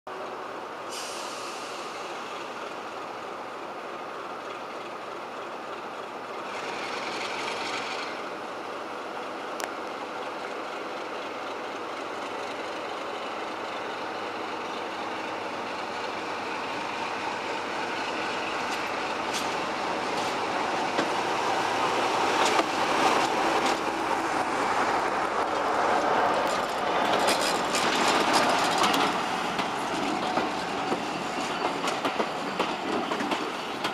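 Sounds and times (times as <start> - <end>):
diesel locomotive engine: 0.1 - 33.9
wheels clicking over rail joints: 25.4 - 33.9.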